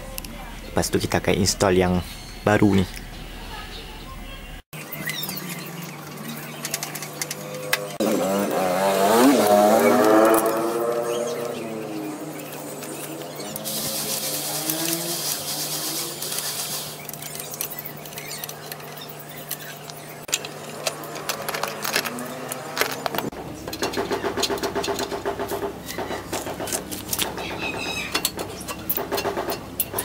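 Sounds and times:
metallic clicks and knocks: 0:17.1 - 0:27.3.

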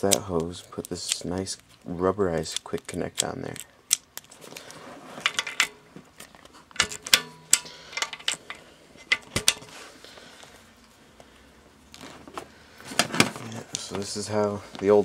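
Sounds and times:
hardware and packaging clicking: 0:00.0 - 0:09.8.

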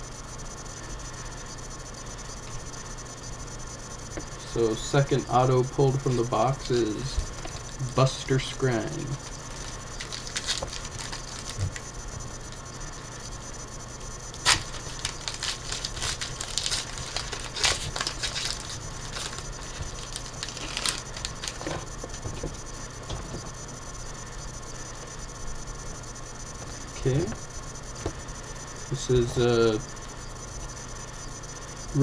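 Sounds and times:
cards rustling: 0:04.4 - 0:11.9, 0:14.4 - 0:22.5
foil wrapper crinkling and tearing: 0:06.0 - 0:08.2, 0:09.0 - 0:11.8, 0:14.4 - 0:21.9.

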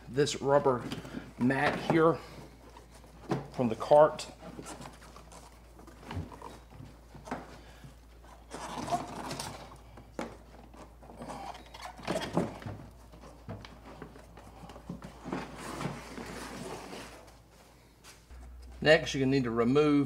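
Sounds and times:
rubber mat scraping and rustling: 0:10.8 - 0:18.6.

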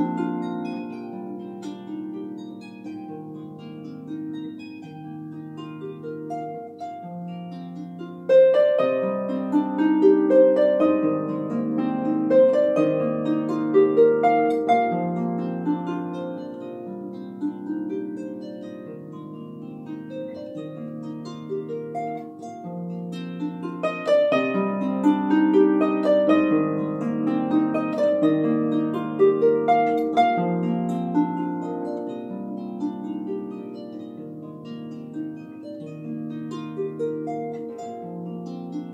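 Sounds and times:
harp plucked notes: 0:00.0 - 0:38.9.

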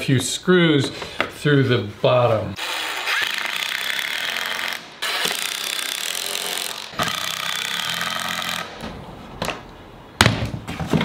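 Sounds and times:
impact driver driving screws: 0:02.6 - 0:08.8.

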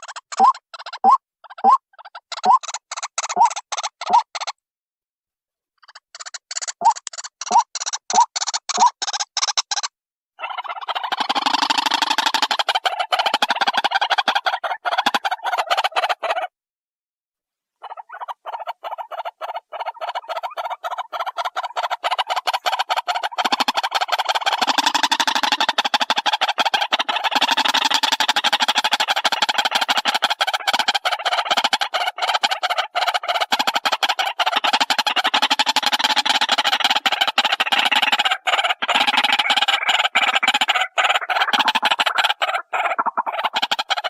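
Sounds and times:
bird calling harsh notes: 0:00.0 - 0:04.5, 0:06.5 - 0:09.8, 0:17.8 - 0:44.0.

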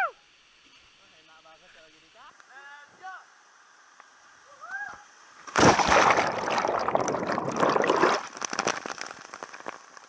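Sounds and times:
loud splash into water: 0:05.5 - 0:09.0
underwater churning bubbling: 0:05.6 - 0:09.7.

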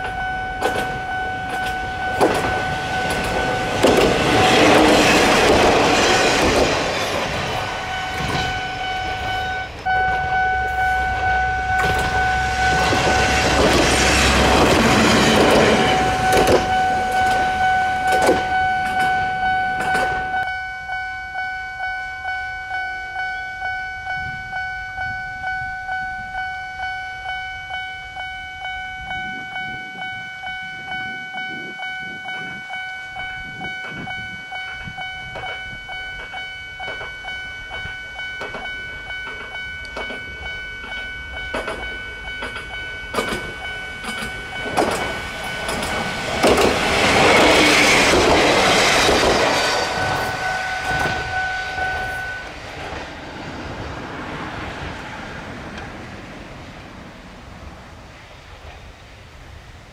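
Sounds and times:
train wheels clicking over rail joints: 0:00.0 - 0:20.5, 0:32.3 - 0:56.4
railway crossing bell ringing: 0:00.0 - 0:52.6.

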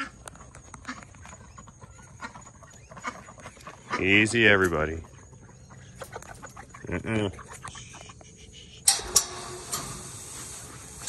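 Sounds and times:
chicken squawk: 0:05.0 - 0:08.9.

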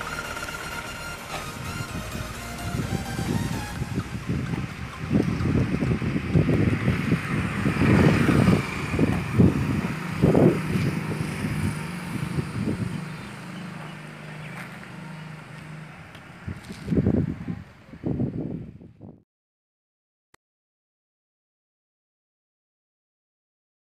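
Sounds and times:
wind buffeting microphone: 0:00.0 - 0:14.6, 0:16.2 - 0:19.2.

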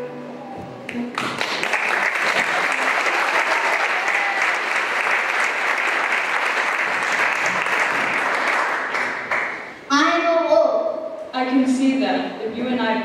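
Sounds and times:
audience applauding: 0:00.9 - 0:09.8.

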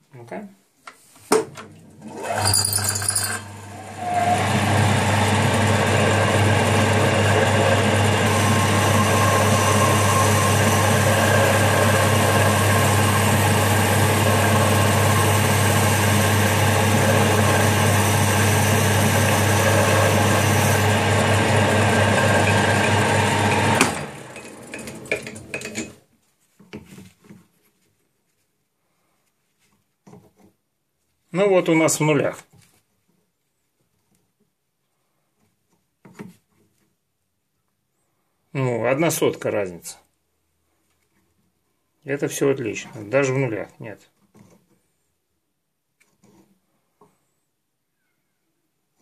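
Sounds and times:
lathe winding down: 0:02.0 - 0:25.9
lathe motor humming: 0:03.4 - 0:25.8.

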